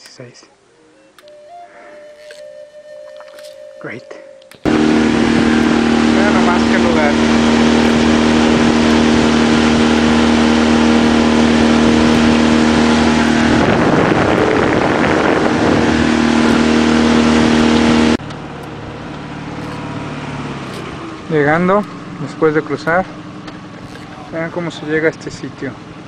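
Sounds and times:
outboard motor running: 4.6s - 26.0s
water and wind rushing: 4.7s - 18.2s.

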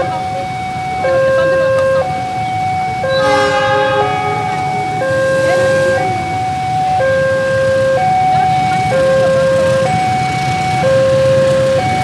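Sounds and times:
two-tone crossing alarm: 0.0s - 12.0s
low engine rumble: 3.0s - 10.1s.

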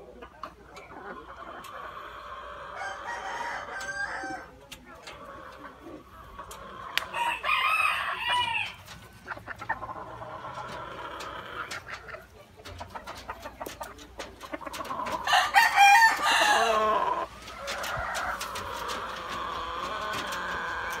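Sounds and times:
chickens calling: 0.0s - 21.0s
roosters crowing: 1.8s - 4.6s, 5.2s - 11.9s, 14.6s - 21.0s.

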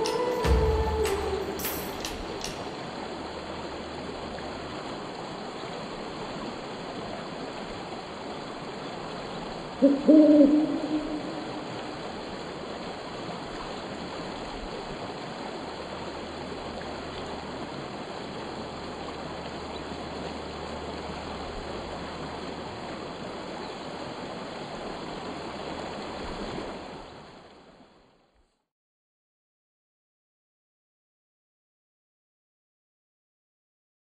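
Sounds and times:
stream rushing over its bed: 0.0s - 28.3s.

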